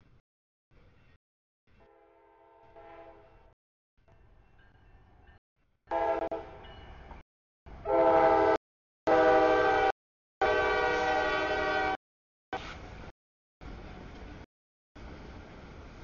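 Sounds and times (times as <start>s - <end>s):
locomotive horn blasts: 1.8s - 3.4s, 5.9s - 6.7s, 7.8s - 12.0s.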